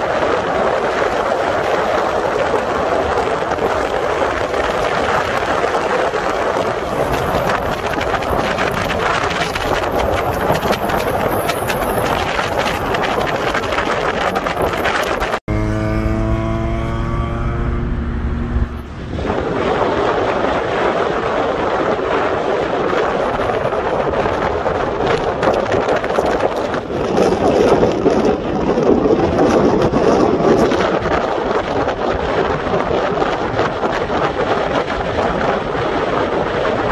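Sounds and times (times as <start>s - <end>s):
wind rushing over microphone: 0.0s - 36.9s
road noise: 3.0s - 21.5s
car engine revving: 15.4s - 19.6s.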